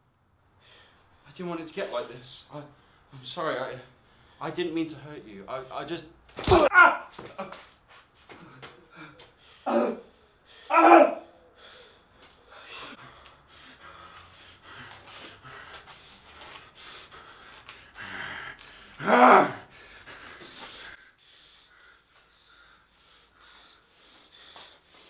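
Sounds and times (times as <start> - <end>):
person crying out: 6.4 - 7.1, 10.7 - 11.3, 19.0 - 19.6.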